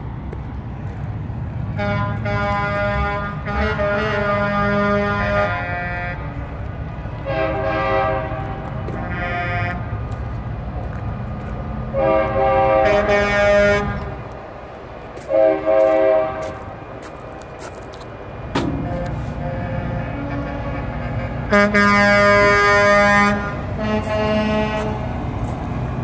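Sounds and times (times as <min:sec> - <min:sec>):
diesel engines rumbling: 0:00.0 - 0:26.0
truck air horns blasting: 0:01.7 - 0:10.1, 0:11.9 - 0:14.3, 0:15.2 - 0:17.4, 0:18.6 - 0:25.6.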